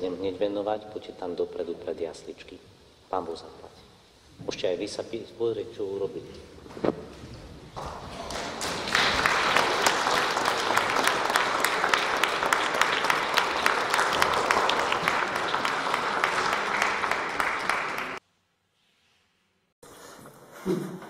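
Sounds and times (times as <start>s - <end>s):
audience applauding: 7.8s - 18.2s.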